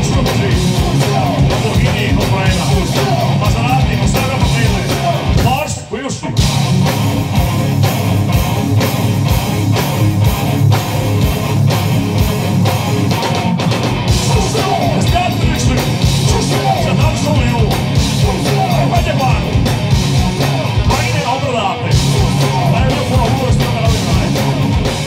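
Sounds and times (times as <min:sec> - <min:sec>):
bass guitar: 0:00.0 - 0:25.0
distorted electric guitars: 0:00.0 - 0:25.0
steady drum beat: 0:00.0 - 0:25.0
person singing into microphone: 0:14.2 - 0:19.5.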